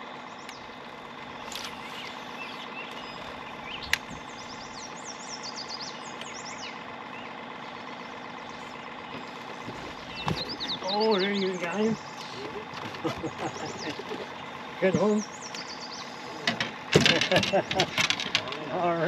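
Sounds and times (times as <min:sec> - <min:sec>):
boat motor humming: 0:00.0 - 0:19.0
songbird chirping: 0:00.1 - 0:19.0.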